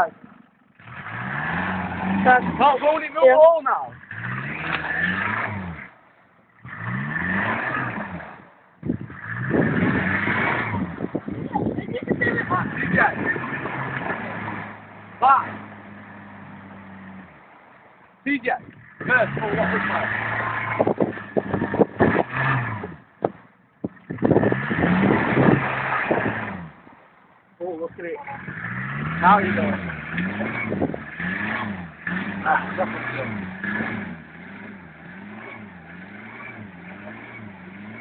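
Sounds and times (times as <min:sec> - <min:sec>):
off-road engine revving: 0:00.0 - 0:38.0
mud and water splashing: 0:09.1 - 0:18.2, 0:24.0 - 0:27.3, 0:28.0 - 0:38.0
rough engine clatter: 0:18.6 - 0:27.0, 0:27.8 - 0:38.0.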